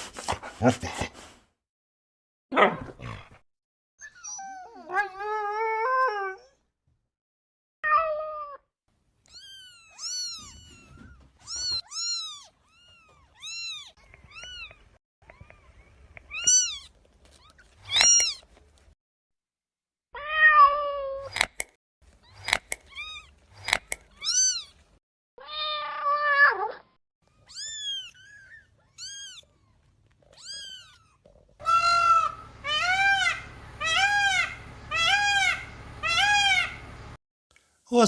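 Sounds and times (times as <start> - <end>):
cats meowing: 9.3 - 18.5, 25.4 - 36.9.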